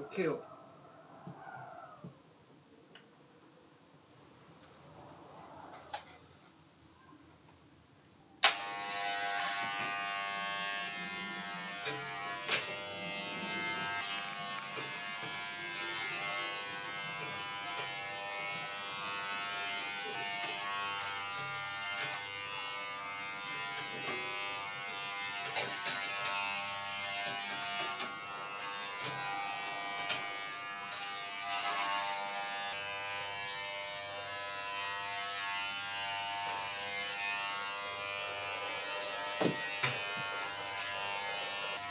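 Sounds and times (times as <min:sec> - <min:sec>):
electric clipper buzzing: 0:08.4 - 0:41.9.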